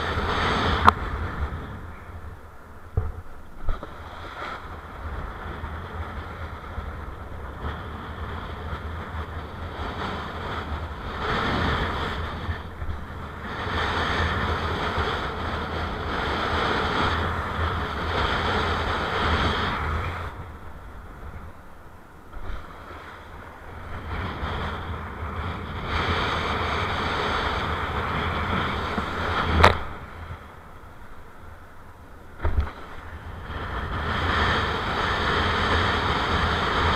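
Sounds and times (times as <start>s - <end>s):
wind buffeting microphone: 0.0s - 36.9s.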